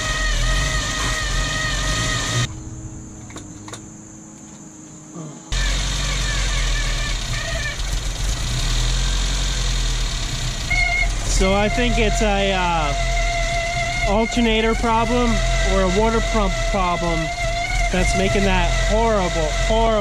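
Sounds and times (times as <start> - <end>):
car engine running: 0.0 - 4.8, 5.5 - 20.0
high whining engine noise: 0.0 - 20.0.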